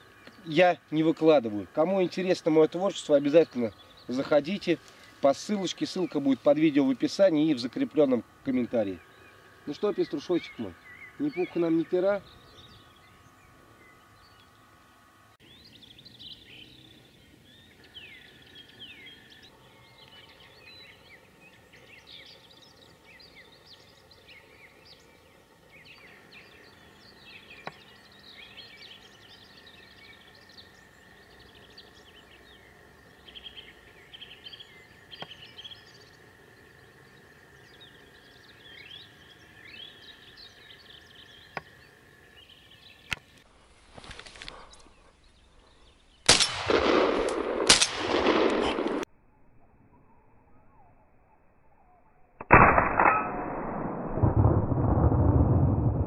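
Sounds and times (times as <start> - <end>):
songbirds chirping: 0.0 - 52.4
sharp click: 52.4 - 53.8.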